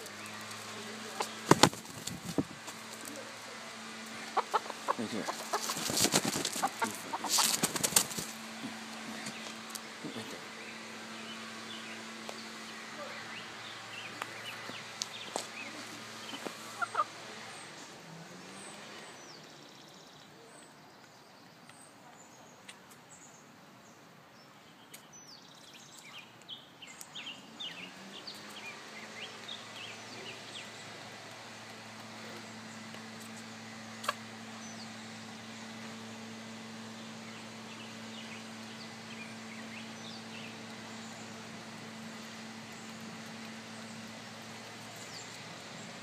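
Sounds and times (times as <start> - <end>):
beak tapping on ground: 0.1 - 3.1
chicken chirping: 4.0 - 8.3, 9.1 - 17.1.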